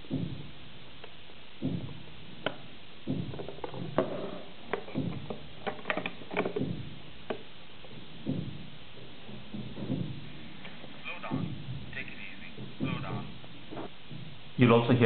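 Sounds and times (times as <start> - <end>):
handling knocks and clicks: 0.1 - 11.8.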